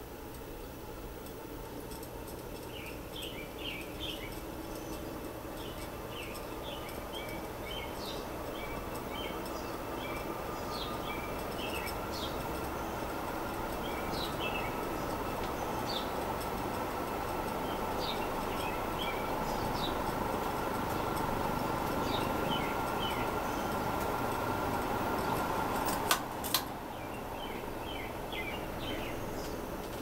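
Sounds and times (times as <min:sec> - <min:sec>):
ceiling fan motor hum and whoosh: 0:00.0 - 0:30.0
small bird chirping: 0:02.3 - 0:25.6, 0:26.9 - 0:29.8.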